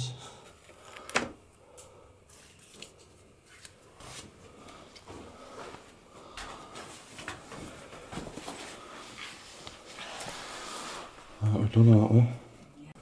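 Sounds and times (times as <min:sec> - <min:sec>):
footsteps and rustles on carpet: 0:03.4 - 0:11.4.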